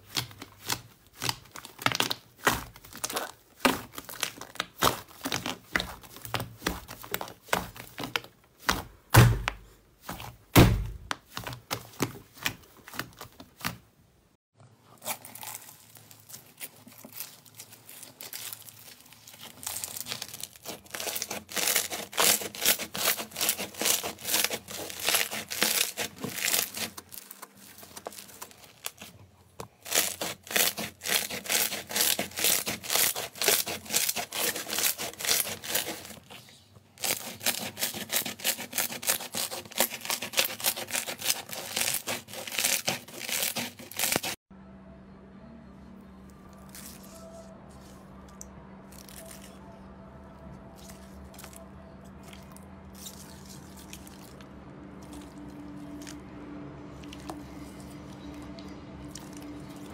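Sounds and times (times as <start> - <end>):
slime crackling and popping: 0.0 - 8.3, 15.0 - 29.1, 29.7 - 36.3, 37.0 - 44.4.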